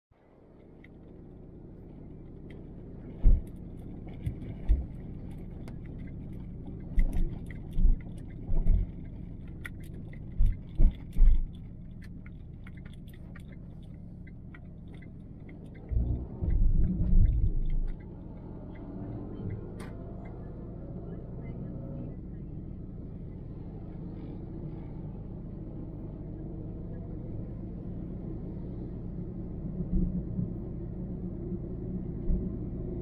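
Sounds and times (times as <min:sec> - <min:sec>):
car road and engine rumble: 0:00.1 - 0:33.0
light clicking rattles: 0:02.2 - 0:20.5
heavy low thumps: 0:15.9 - 0:17.8.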